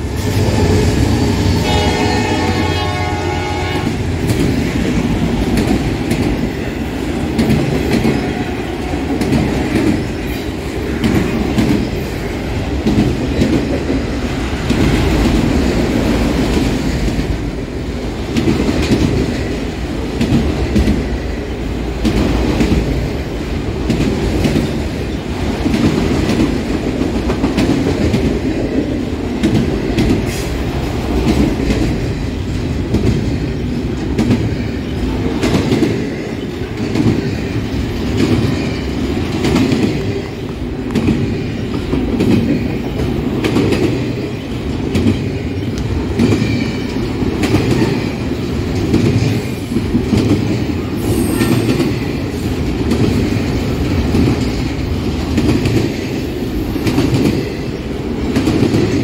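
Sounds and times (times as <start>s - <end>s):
train wheels rumbling on rail: 0.0s - 59.0s.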